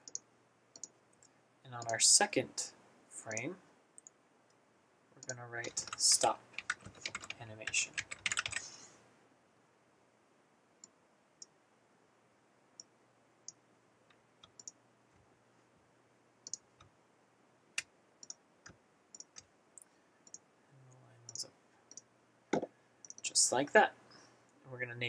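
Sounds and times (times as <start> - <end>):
computer mouse clicks: 0.0 - 2.0, 5.2 - 6.0, 14.4 - 14.8, 16.4 - 16.9, 17.8 - 20.4, 21.3 - 23.2
keyboard typing: 5.2 - 8.7, 14.4 - 14.8, 17.8 - 19.5.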